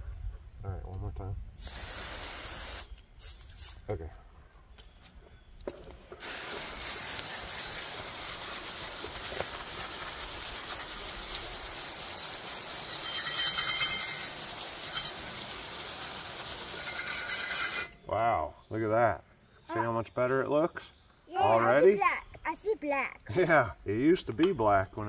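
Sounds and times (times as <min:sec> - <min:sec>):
hose nozzle spraying water on metal: 0:01.6 - 0:03.8, 0:06.2 - 0:18.0.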